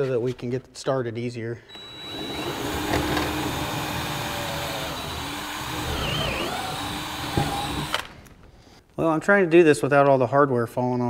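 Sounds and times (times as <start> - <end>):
power drill boring into wall: 1.7 - 8.2.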